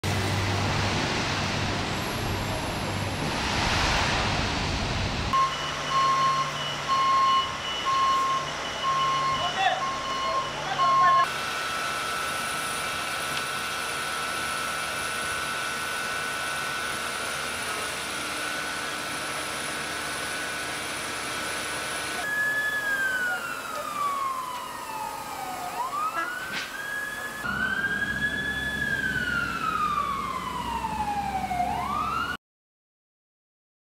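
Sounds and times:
steady rushing noise: 0.1s - 5.4s
emergency vehicle wail siren: 5.3s - 32.4s
constant high tone: 5.4s - 12.9s, 21.8s - 30.2s.

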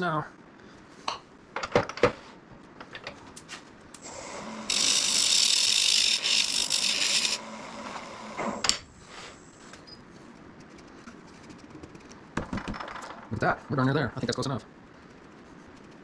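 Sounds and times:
turning tool scraping wood: 4.0s - 8.6s
wood lathe running: 4.0s - 8.6s.

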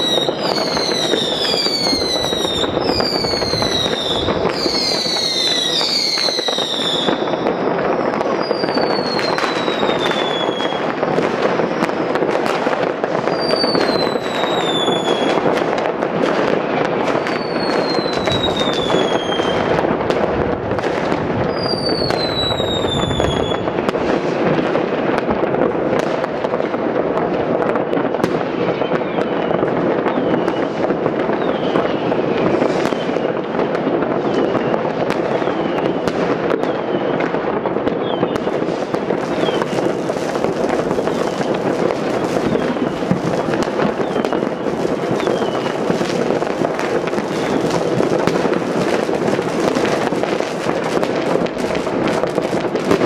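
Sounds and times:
distant fireworks crackling: 0.0s - 53.0s
whistling fireworks: 0.0s - 53.0s.

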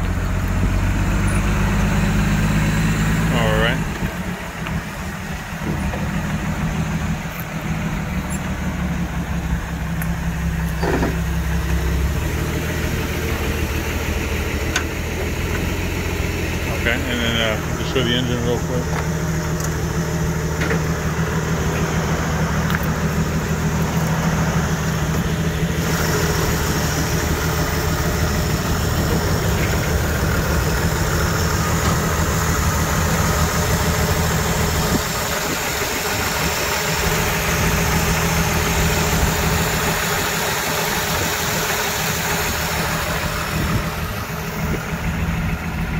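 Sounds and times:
engine idling: 0.0s - 45.9s.

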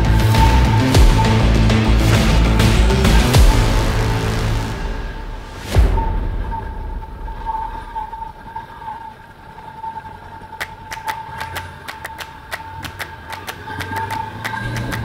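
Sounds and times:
motorcycle engine running: 0.0s - 5.0s
quick irregular clicks: 10.6s - 15.0s.

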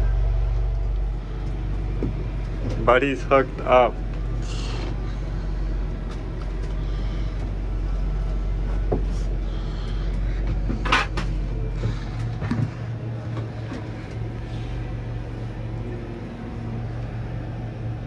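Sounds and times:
low mechanical hum: 0.0s - 18.0s
gear knocking and clattering: 9.8s - 13.9s.

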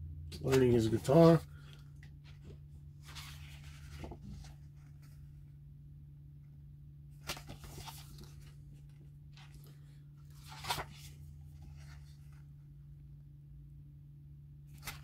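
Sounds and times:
steady low hum: 0.0s - 15.0s
paper pages rustling: 0.4s - 5.5s, 7.2s - 12.6s, 14.7s - 15.0s.

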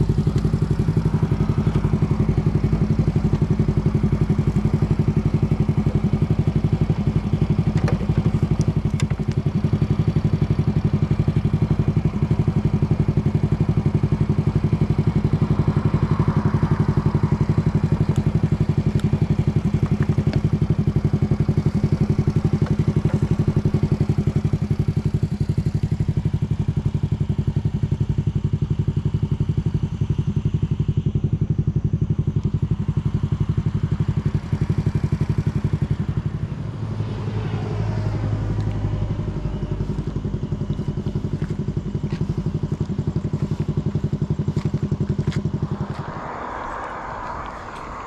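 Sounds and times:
small motorcycle engine running: 0.0s - 48.0s
deeper hum: 38.2s - 48.0s.

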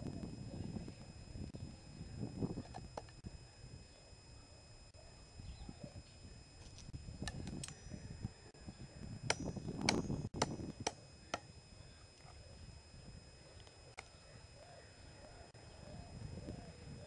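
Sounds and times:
metallic ring from blade: 7.6s - 8.0s, 9.3s - 10.6s.

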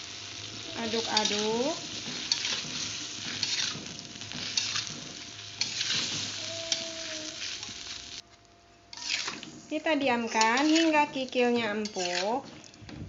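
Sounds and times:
paste sizzling in a pan: 0.0s - 8.2s, 8.9s - 12.5s
metal spatula scraping a pan: 0.8s - 6.8s, 8.9s - 12.8s.

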